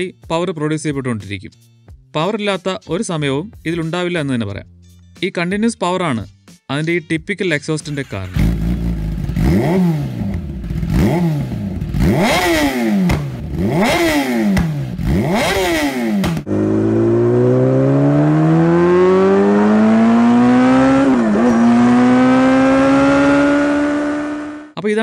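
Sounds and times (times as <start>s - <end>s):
motorcycle accelerating: 7.9s - 24.8s
motorcycle engine revving: 7.9s - 24.8s.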